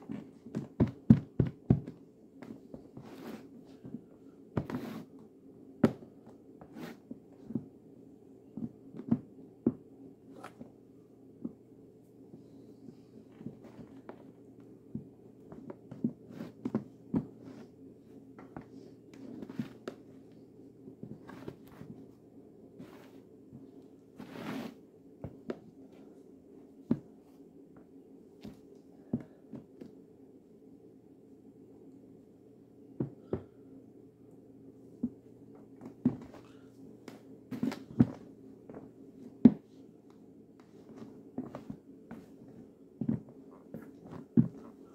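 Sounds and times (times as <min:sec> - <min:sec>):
low steady hum: 0:00.0 - 0:44.9
footsteps on wooden floor: 0:35.9 - 0:36.4.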